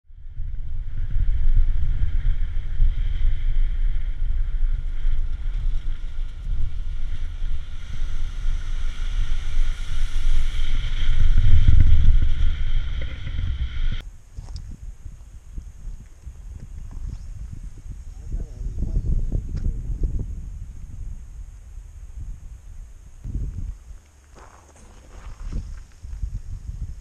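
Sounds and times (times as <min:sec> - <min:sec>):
road and wind rumble: 0:00.1 - 0:27.0.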